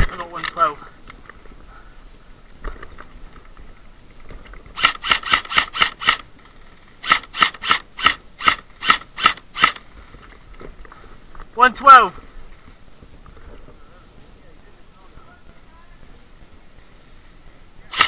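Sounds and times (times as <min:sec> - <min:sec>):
airsoft rifle firing single shots: 0:04.8 - 0:06.2, 0:07.0 - 0:09.8.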